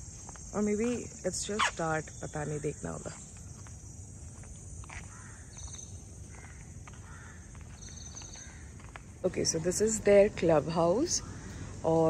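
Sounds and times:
faint footsteps: 0.0s - 1.1s, 2.9s - 12.0s.

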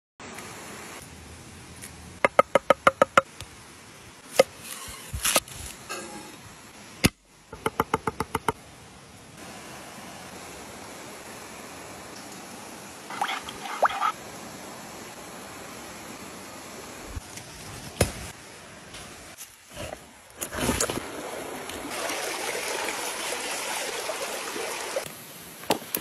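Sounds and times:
stream running: 9.4s - 17.2s, 19.8s - 25.6s.

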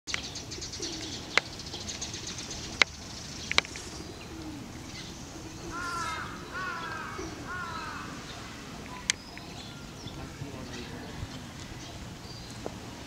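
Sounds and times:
small birds chirping: 0.1s - 13.0s
pigeon cooing: 0.6s - 1.4s, 3.8s - 10.0s.

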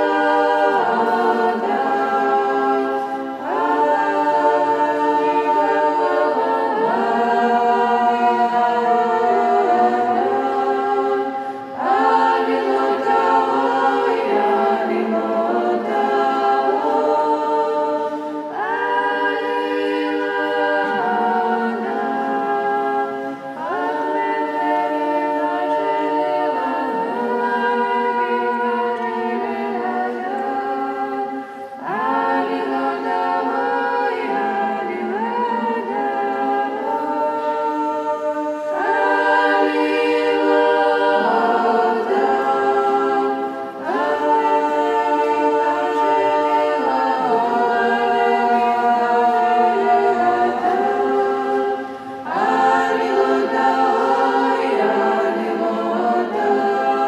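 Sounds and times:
women's choir chanting a cappella: 0.0s - 57.0s.

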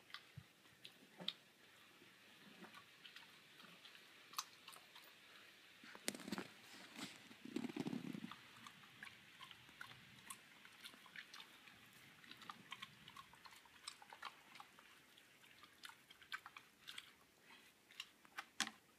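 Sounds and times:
dog chewing crunches: 5.9s - 18.7s.

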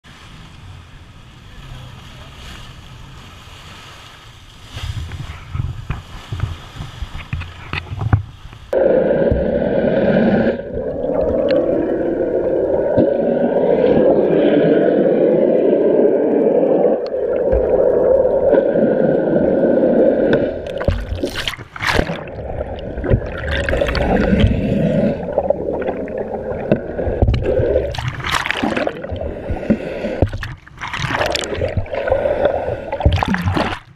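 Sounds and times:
water splashes: 0.0s - 33.9s
wind and sea hiss: 0.0s - 33.9s
water rushing underwater: 8.7s - 33.9s.

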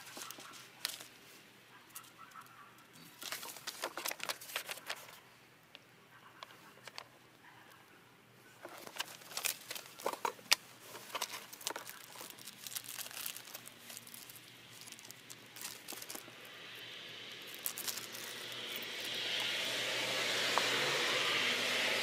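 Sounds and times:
plastic bag crinkling: 0.0s - 1.1s, 3.0s - 5.2s, 8.6s - 16.4s, 17.2s - 19.5s.

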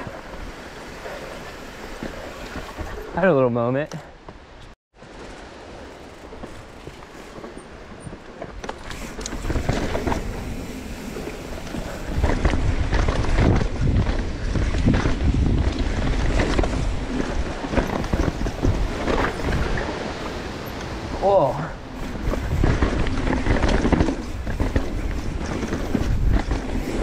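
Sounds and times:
bike tyres on dirt trail: 0.0s - 3.3s, 4.1s - 27.0s
bike rattling over bumps: 5.0s - 20.8s, 21.4s - 27.0s
wind buffeting microphone: 6.1s - 27.0s.

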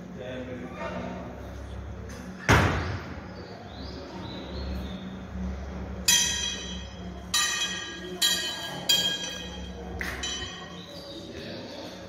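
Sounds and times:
sharp thump: 2.5s - 3.0s
temple bell ringing: 6.1s - 10.8s.

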